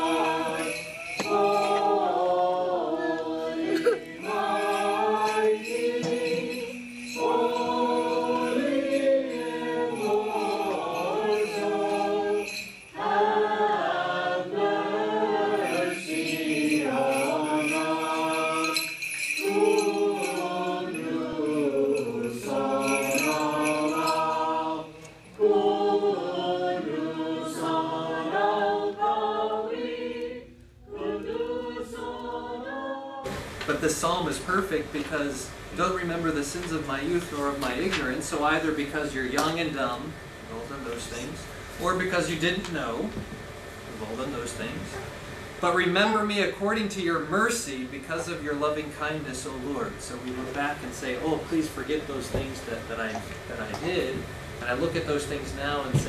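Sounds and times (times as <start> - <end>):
choir singing a hymn: 0.0 - 35.4.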